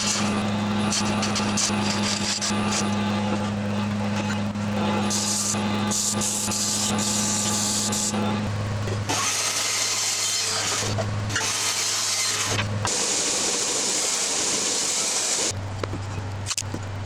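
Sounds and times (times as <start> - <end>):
belt sander sanding wood: 0.0 - 8.4
bandsaw blade cutting wood: 0.0 - 15.5
motor low hum: 0.0 - 17.0.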